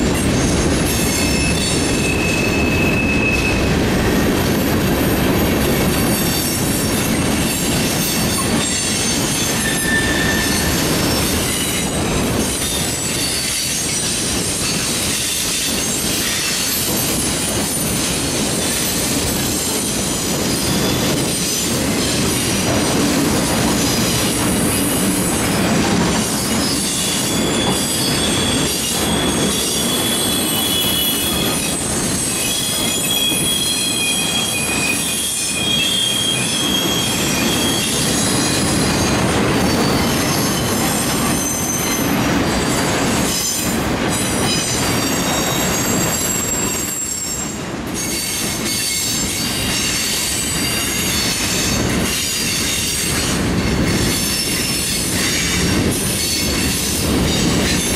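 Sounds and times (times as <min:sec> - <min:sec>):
train wheels rumbling on rail: 0:00.0 - 0:57.9
high-pitched wheel squeals: 0:00.1 - 0:03.7, 0:06.0 - 0:18.0, 0:26.4 - 0:42.6.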